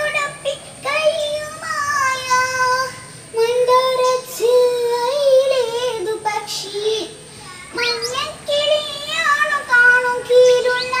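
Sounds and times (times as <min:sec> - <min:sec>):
girl singing chant: 0:00.0 - 0:11.0.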